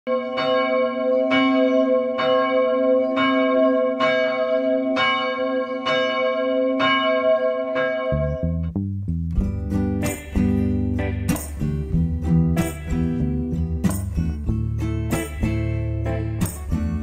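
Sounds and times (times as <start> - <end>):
church bell tolling: 0.1 - 8.6
low music: 8.2 - 17.0.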